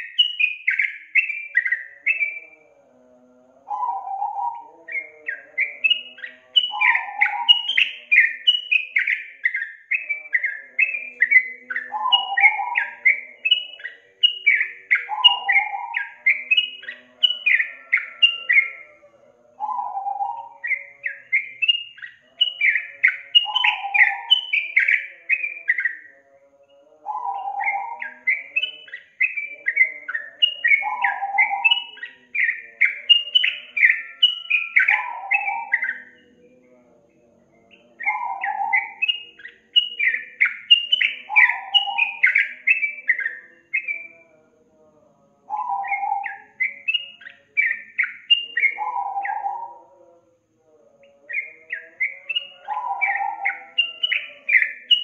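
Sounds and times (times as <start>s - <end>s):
bird singing bubbling chirps: 0.0s - 2.5s, 3.8s - 19.0s, 51.1s - 55.0s.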